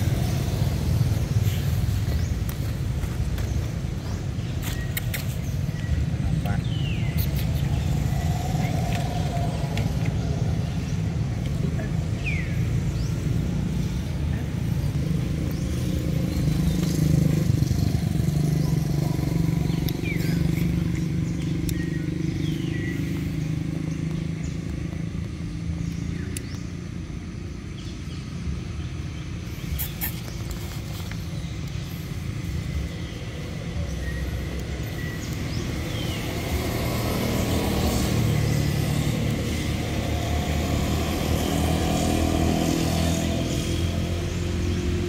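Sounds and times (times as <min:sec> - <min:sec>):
vehicle engine humming: 0:00.0 - 0:45.0
high chirps and clicks: 0:19.7 - 0:26.9, 0:29.4 - 0:38.3.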